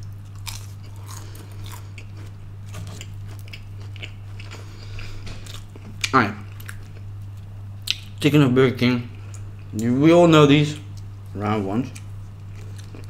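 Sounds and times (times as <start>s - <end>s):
person chewing crunchy food: 0.0s - 8.1s, 11.9s - 13.0s
steady low hum: 0.0s - 13.0s.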